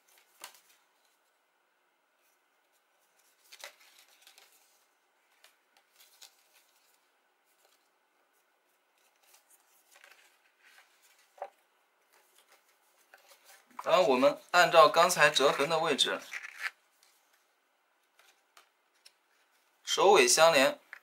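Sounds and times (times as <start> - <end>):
cardstock rustling and crackling: 3.0 - 7.9.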